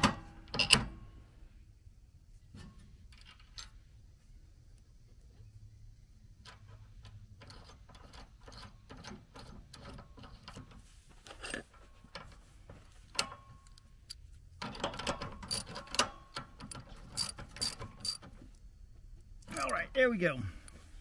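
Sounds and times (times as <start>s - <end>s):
metal nut clicking: 6.4s - 12.4s, 13.1s - 18.4s.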